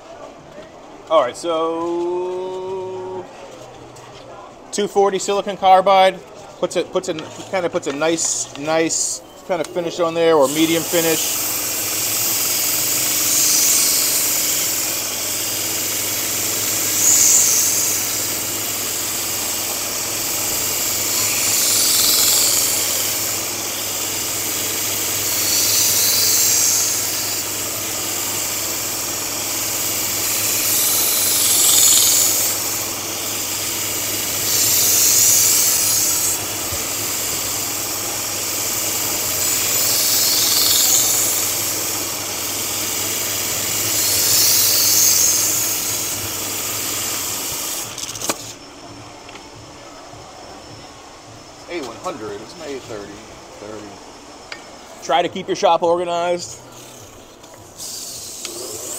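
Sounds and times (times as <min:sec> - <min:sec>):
knife grinding hiss: 0:10.2 - 0:48.7, 0:56.6 - 0:58.9
belt grinder motor hum: 0:10.4 - 0:48.6.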